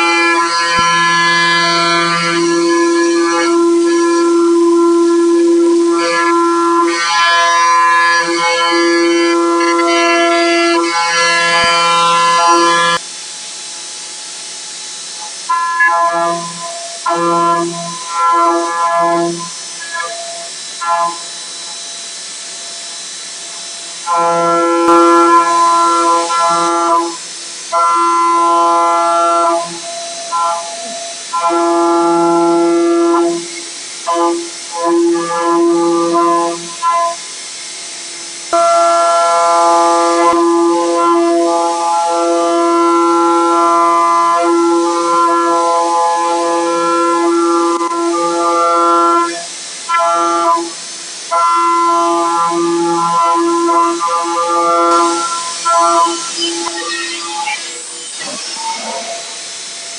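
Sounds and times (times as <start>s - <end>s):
cutter whining: 0.0s - 13.0s, 53.0s - 59.9s
milling machine hiss: 0.0s - 41.8s, 42.6s - 59.9s.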